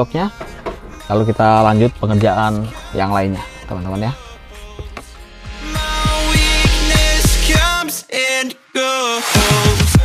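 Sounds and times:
deep bass: 0.0 - 7.8.

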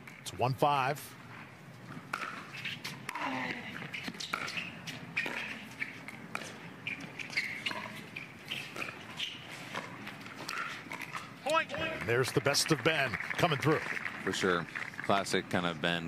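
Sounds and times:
sneakers squeaking on court: 2.2 - 11.1.

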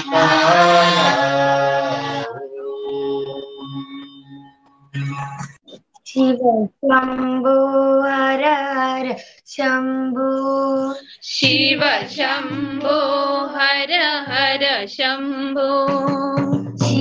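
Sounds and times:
woman singing slow melody: 1.2 - 4.3.

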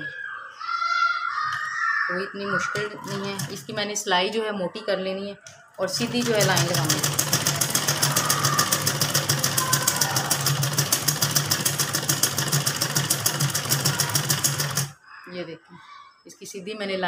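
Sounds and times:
sewing machine running: 3.0 - 3.8, 5.9 - 15.0.

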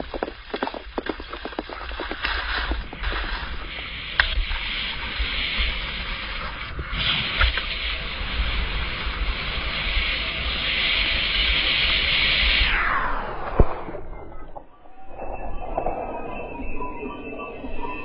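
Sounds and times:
skis hissing over snow: 0.0 - 12.8
wind buffeting microphone: 0.0 - 18.0.

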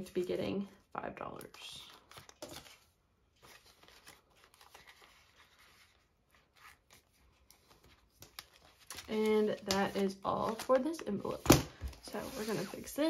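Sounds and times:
plastic envelope crinkling: 1.4 - 11.2
paper banknotes rustling: 1.5 - 11.4.

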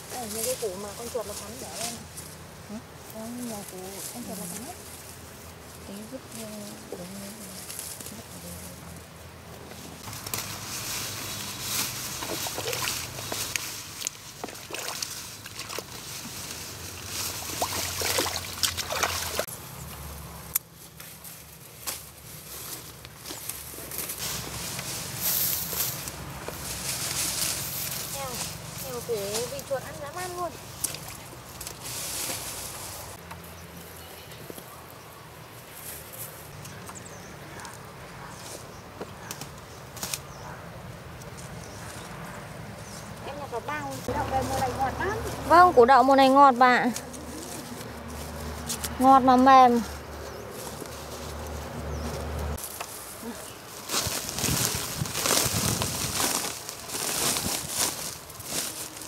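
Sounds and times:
leafy vines rustling: 0.0 - 59.0
boots splashing through muddy water: 12.2 - 16.0, 17.3 - 19.5.

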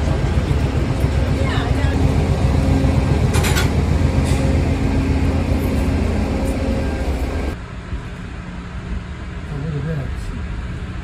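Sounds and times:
train rumbling: 0.0 - 11.0.

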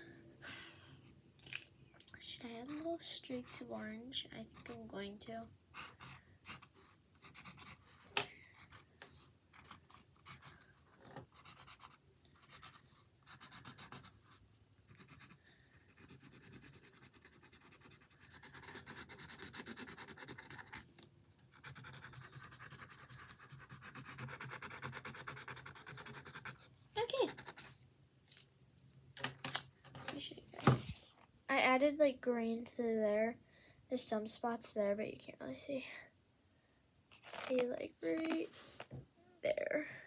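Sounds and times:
marker scribbling on canvas: 2.2 - 5.0, 5.8 - 10.6, 11.3 - 20.8, 21.5 - 27.8.

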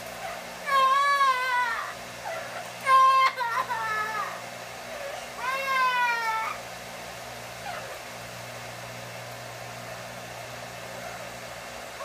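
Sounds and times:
parrot wailing: 0.2 - 6.6.

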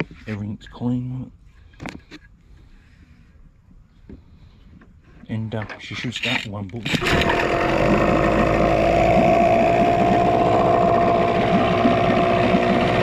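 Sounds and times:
outboard motor running: 7.0 - 13.0.

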